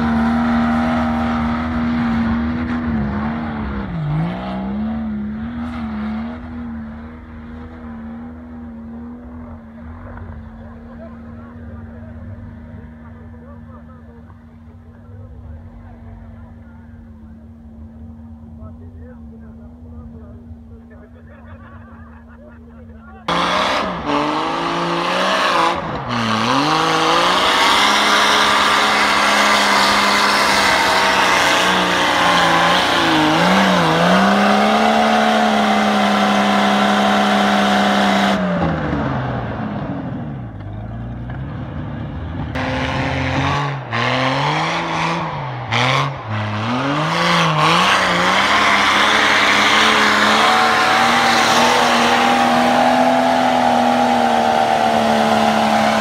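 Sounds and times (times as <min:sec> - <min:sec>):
car engine revving hard: 0:00.0 - 0:09.0, 0:23.2 - 0:40.4, 0:42.5 - 0:56.0.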